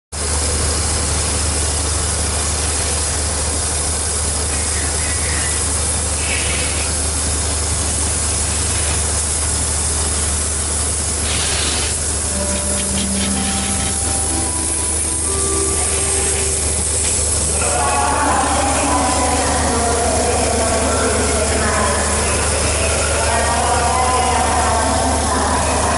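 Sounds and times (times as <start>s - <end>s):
pressure washer spray hiss: 11.2s - 12.1s
low hum: 12.2s - 25.5s.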